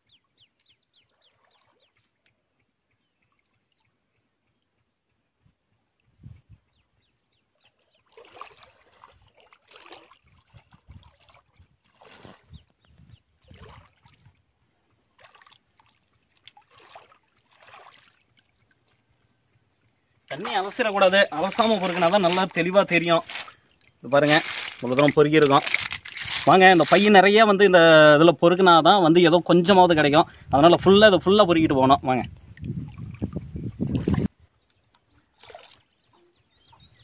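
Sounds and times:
shallow water sloshing: 7.7s - 12.7s, 13.4s - 14.5s, 15.1s - 27.3s, 35.3s - 36.0s
short splashes by hand: 8.0s - 12.6s, 13.4s - 14.4s, 15.2s - 18.5s, 20.3s - 27.2s, 35.4s - 35.9s.

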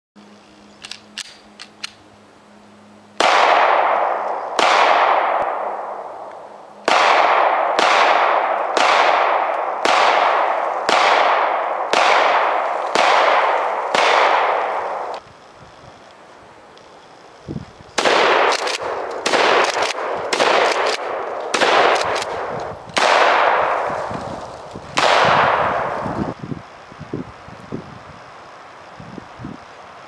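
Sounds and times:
pistol shots: 3.2s - 6.2s, 6.8s - 15.2s, 18.0s - 24.0s, 25.0s - 26.0s.

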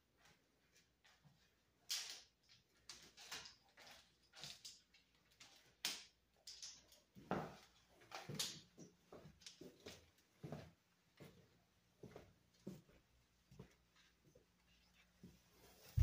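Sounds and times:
claws clicking and scraping on tile: 1.9s - 8.6s.

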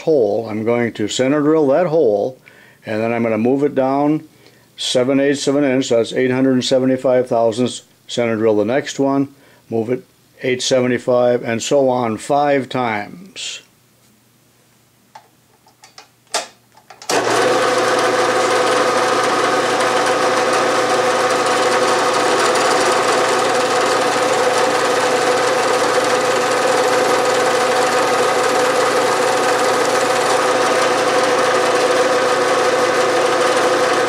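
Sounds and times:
milling machine spindle humming: 17.1s - 34.0s.

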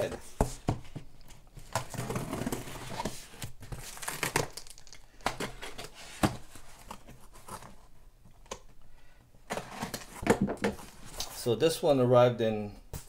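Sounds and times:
plastic wrap tearing and crinkling: 3.8s - 5.0s.

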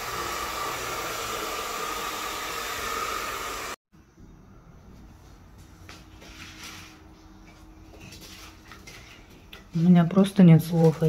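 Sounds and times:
hair dryer blowing: 0.0s - 3.8s.

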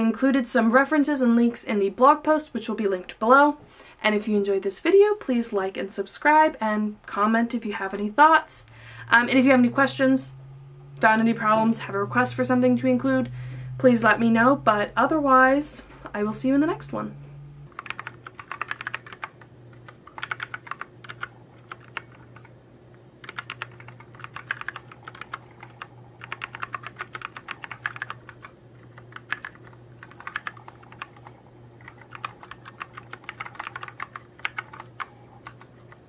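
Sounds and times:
faint low hum: 0.0s - 36.0s
typing on computer keyboard: 17.7s - 22.6s, 23.2s - 36.0s.

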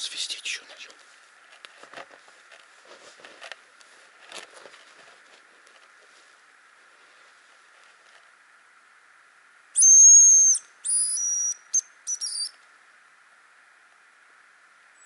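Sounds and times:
bird decoy whistle: 9.8s - 12.6s.

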